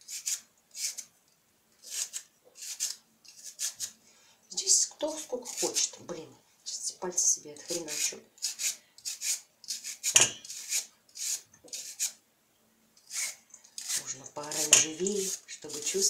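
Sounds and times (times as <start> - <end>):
peeler rasping carrot: 0.0 - 1.1, 1.8 - 4.0, 5.1 - 6.0, 7.6 - 12.2, 13.0 - 16.0.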